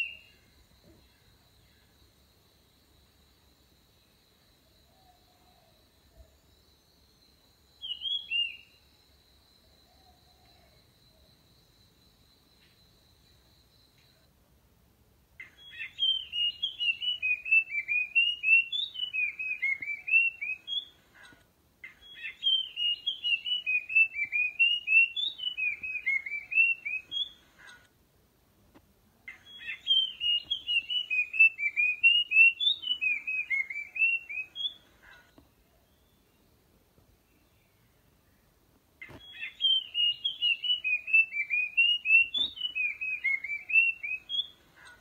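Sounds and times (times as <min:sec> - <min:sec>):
bird whistling song: 0:00.0 - 0:00.4, 0:07.8 - 0:08.8, 0:15.4 - 0:21.0, 0:21.8 - 0:27.4, 0:29.3 - 0:34.8, 0:39.0 - 0:45.0.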